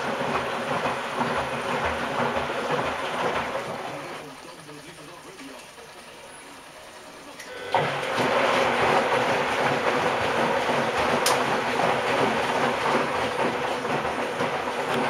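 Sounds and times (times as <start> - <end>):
water filling washing machine: 0.0 - 15.0
washing machine click: 9.8 - 15.0.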